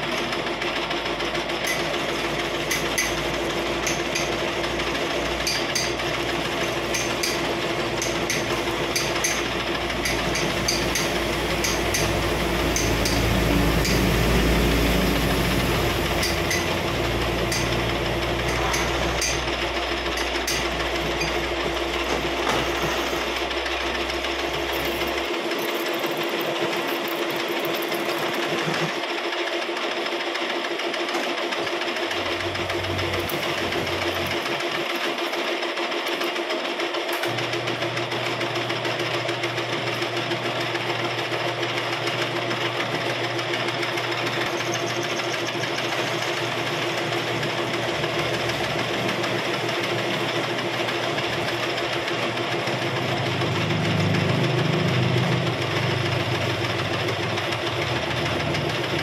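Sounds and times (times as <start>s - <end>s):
metal lathe running: 0.0s - 59.0s.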